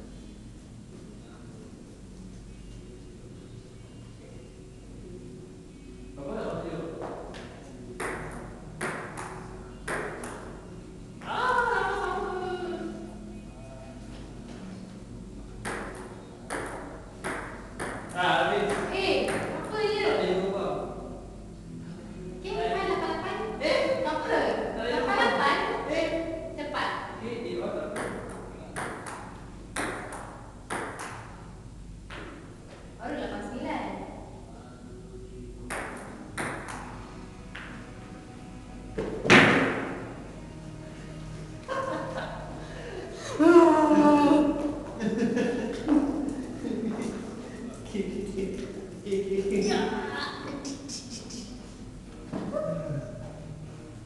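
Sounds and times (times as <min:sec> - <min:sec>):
table tennis ball bouncing: 0:08.0 - 0:10.5, 0:15.6 - 0:19.6, 0:27.9 - 0:31.4, 0:35.7 - 0:37.8.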